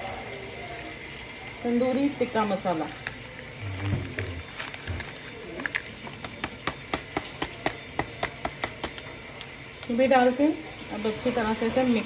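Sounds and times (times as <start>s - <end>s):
foil packet tapping clicks: 4.0s - 9.9s.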